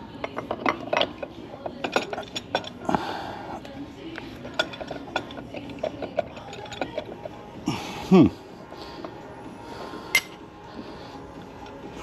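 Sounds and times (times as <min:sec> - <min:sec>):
metal parts clinking: 0:00.2 - 0:02.8, 0:04.4 - 0:07.3.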